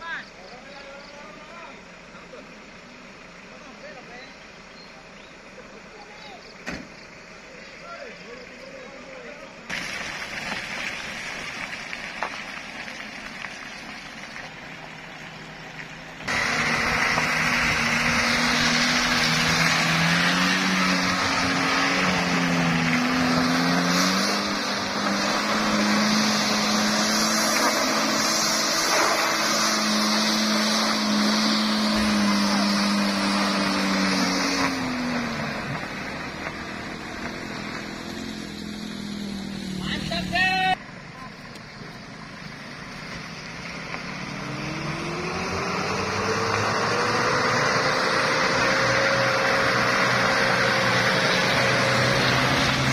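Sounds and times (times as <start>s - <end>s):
truck engine revving: 14.3s - 40.8s, 41.5s - 52.9s.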